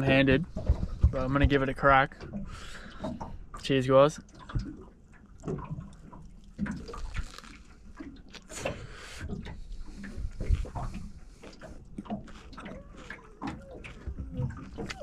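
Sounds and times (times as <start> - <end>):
man chewing food: 4.6 - 15.0
wet mouth clicks and squelches: 6.6 - 15.0.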